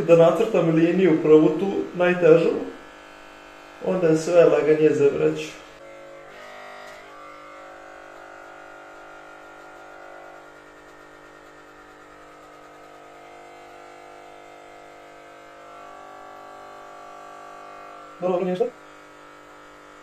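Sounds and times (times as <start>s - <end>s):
electric hair clippers buzzing: 0.0s - 20.0s.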